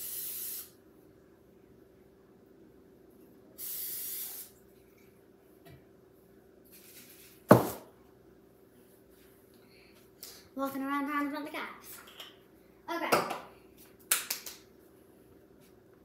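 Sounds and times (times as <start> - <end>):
aerosol spray hissing: 0.0 - 0.8, 3.6 - 4.5
hard object set down: 7.5 - 7.9.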